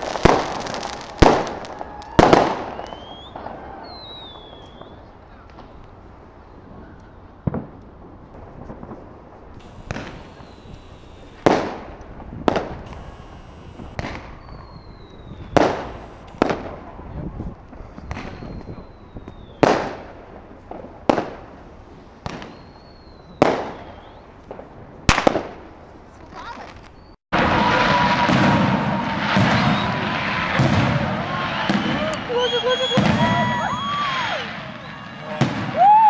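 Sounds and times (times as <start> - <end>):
fireworks bangs echoing: 0.0 - 5.8, 7.4 - 17.1, 17.7 - 25.8, 27.3 - 36.0
faint falling whistles: 1.9 - 5.1, 9.6 - 11.4, 12.9 - 16.3, 18.2 - 19.6, 22.4 - 24.4, 28.9 - 30.1, 31.3 - 36.0.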